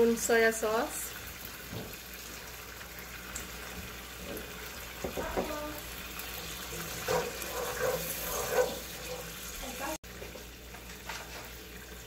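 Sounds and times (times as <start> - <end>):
sauce simmering: 0.3 - 12.0
wooden spatula scraping a pan: 6.7 - 9.9.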